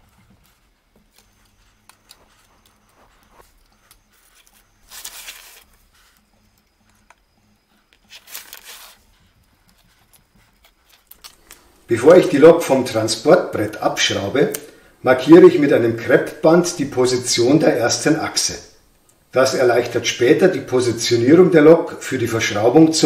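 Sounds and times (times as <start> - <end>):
tape tearing off metal: 4.4 - 5.7, 8.0 - 9.0.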